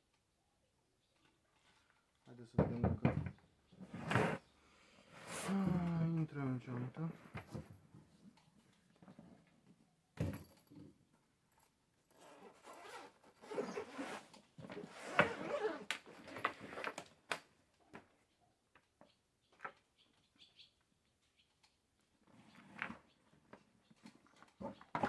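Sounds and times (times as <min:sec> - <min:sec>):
zipper and fabric rustling: 0:03.8 - 0:04.4, 0:12.1 - 0:17.1.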